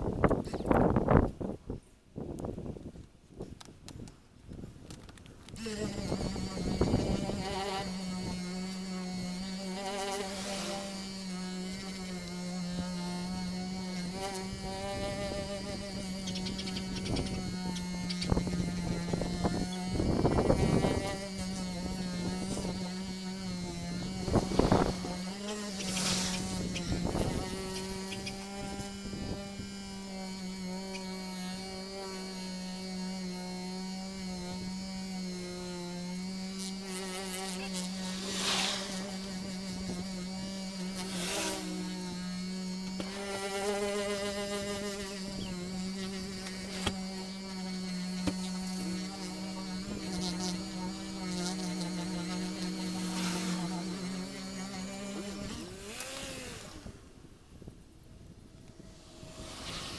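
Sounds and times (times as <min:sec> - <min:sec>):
car polisher humming: 0:05.6 - 0:57.2, 0:58.4 - 0:59.9
rushing hiss: 0:10.1 - 0:11.1, 0:24.4 - 0:27.6, 0:38.0 - 0:39.5, 0:58.8 - 0:59.9.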